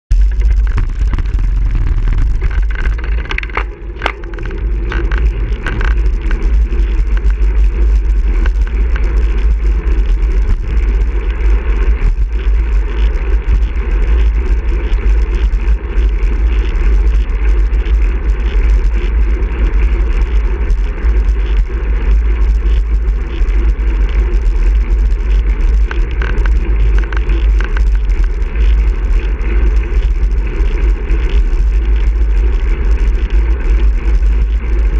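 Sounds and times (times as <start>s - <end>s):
bicycle tyres on asphalt: 0.1s - 34.9s
wind rumbling on microphone: 0.1s - 34.9s.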